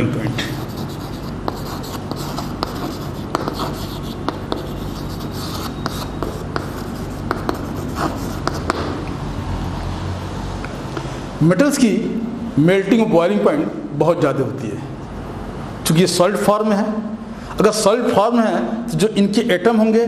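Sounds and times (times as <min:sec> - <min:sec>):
steady low hum: 0:00.0 - 0:09.8
chalk scratching on blackboard: 0:00.4 - 0:09.0
chalk tapping: 0:00.4 - 0:09.1.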